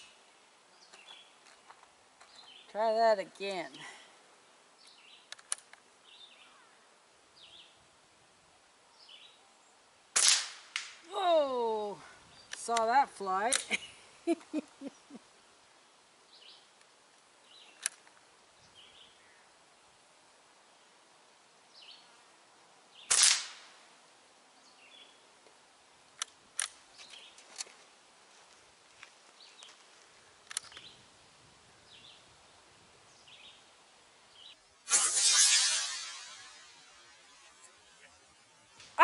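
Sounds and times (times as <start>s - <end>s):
sharp clicks: 5.3s - 5.8s, 26.2s - 26.8s, 30.4s - 30.9s
air rifle shot: 10.2s - 10.9s, 23.1s - 23.6s.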